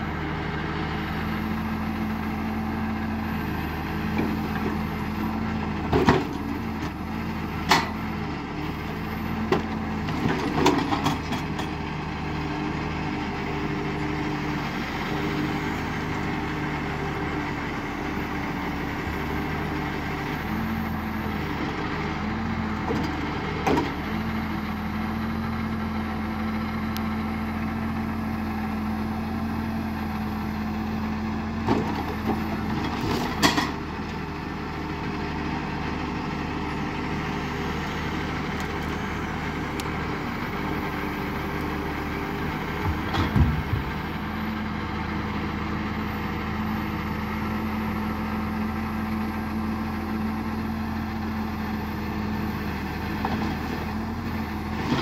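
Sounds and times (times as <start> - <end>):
tractor diesel engine running: 0.0 - 55.0
logs knocking on wood and steel: 42.7 - 44.2.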